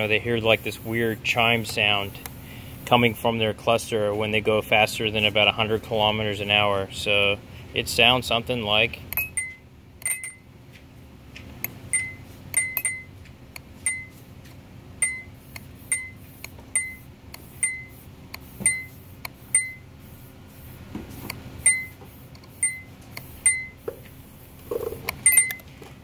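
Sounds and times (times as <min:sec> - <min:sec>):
warning chime dinging: 0:09.2 - 0:10.5, 0:11.9 - 0:13.2, 0:13.8 - 0:14.2, 0:15.0 - 0:15.3, 0:19.5 - 0:19.8, 0:21.6 - 0:22.0, 0:22.6 - 0:23.8, 0:25.2 - 0:25.6.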